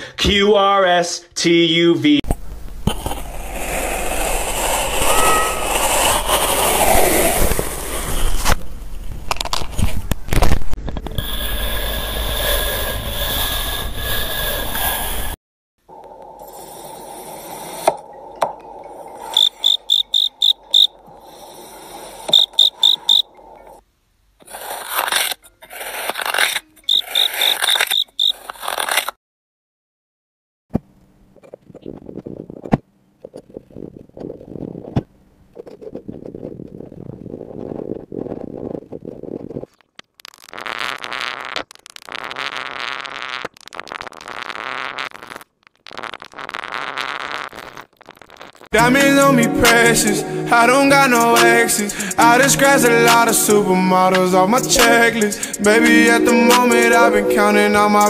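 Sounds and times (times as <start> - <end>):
knife cutting through sand: 3.0 - 8.5, 24.4 - 29.1
sand crackling pressed into glass: 24.6 - 29.1, 40.0 - 48.7.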